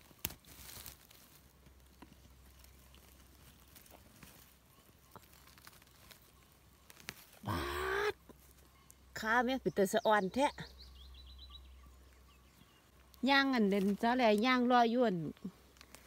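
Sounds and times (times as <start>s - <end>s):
rustling and crackling leaf litter: 0.0s - 9.1s, 13.0s - 16.0s.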